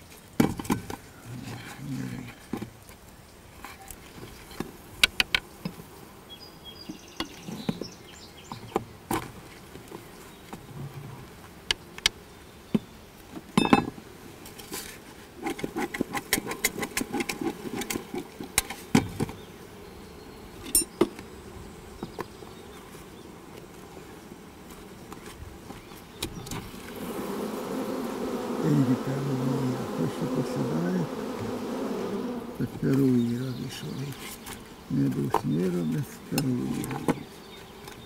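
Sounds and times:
bees buzzing: 15.6 - 38.0.

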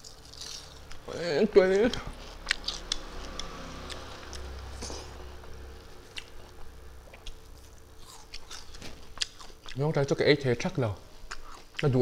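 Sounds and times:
close chewing: 1.8 - 5.2, 6.1 - 9.9, 11.3 - 12.0.

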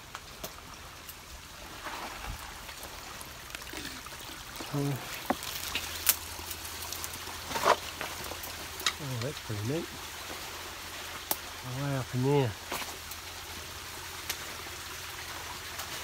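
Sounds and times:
twigs crackling underfoot: 0.0 - 9.5
river water flowing: 0.0 - 16.0.

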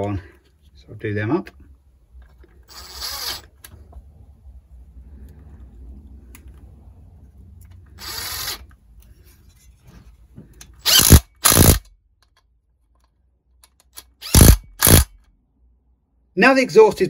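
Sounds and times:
power driver whirring: 2.7 - 3.6, 7.9 - 8.7, 10.8 - 11.9, 14.0 - 15.1.

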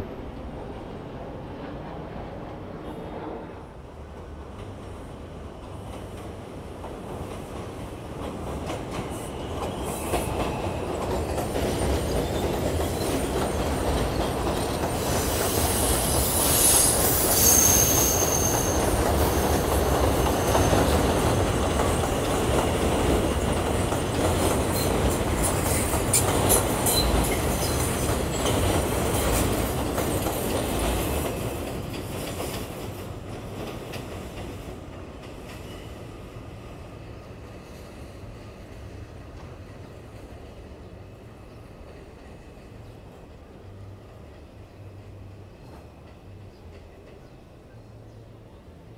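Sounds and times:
subway train passing: 0.0 - 48.9
steel wheels squealing: 9.8 - 21.6, 24.7 - 28.7.

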